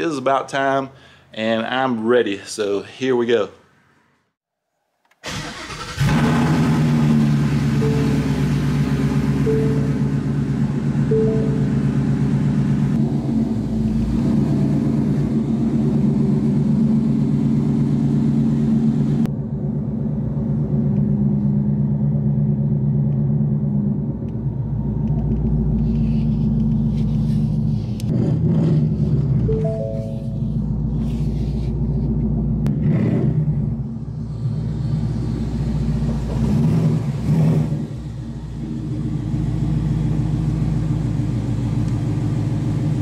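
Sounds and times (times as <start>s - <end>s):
car engine idling: 5.3s - 28.1s, 29.0s - 32.7s, 38.0s - 43.0s
short chime tones: 7.8s - 8.7s, 9.4s - 10.2s, 11.1s - 12.2s, 29.5s - 30.7s.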